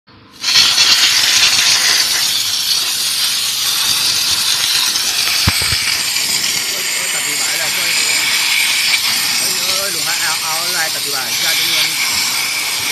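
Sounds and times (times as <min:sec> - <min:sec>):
steam cleaner hissing: 0:00.3 - 0:12.9
brief thump: 0:05.4 - 0:05.9.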